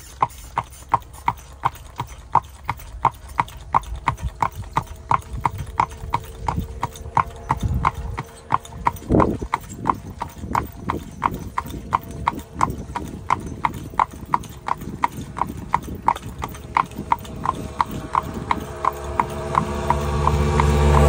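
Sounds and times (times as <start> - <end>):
buggy rumble: 0.0 - 21.0
hooves clip-clopping on pavement: 0.0 - 21.0.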